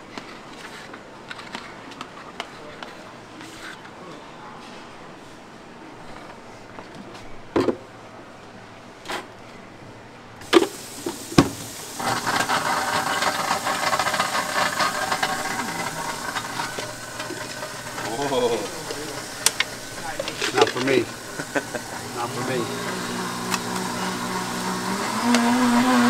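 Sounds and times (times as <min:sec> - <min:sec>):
steady gym din: 0:10.8 - 0:26.0.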